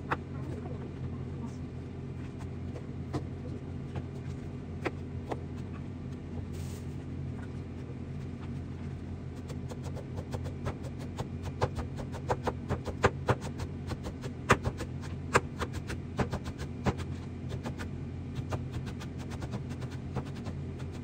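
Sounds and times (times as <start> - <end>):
low hum: 0.0 - 12.2.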